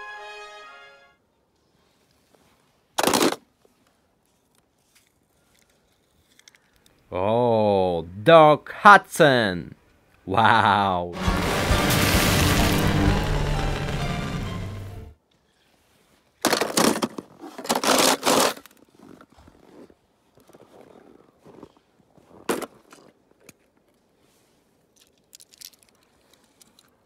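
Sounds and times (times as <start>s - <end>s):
cartoon music: 11.2s - 15.1s.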